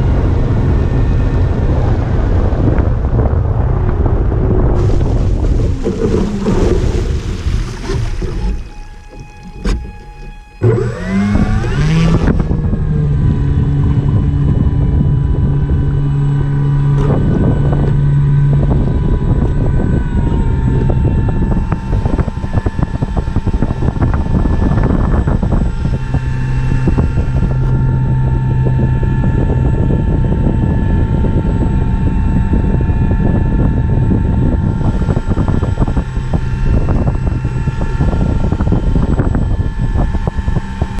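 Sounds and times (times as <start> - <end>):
electric motor and propeller whine: 0.0 - 41.0
water rushing under floats: 4.4 - 12.6.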